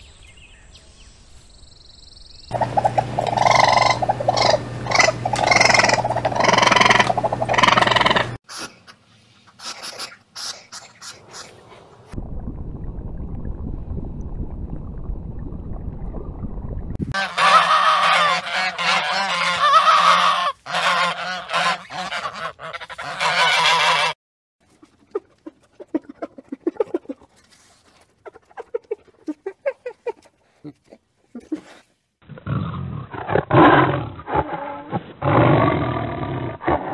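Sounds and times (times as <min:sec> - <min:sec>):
swans honking: 0:02.5 - 0:11.7, 0:17.1 - 0:24.2.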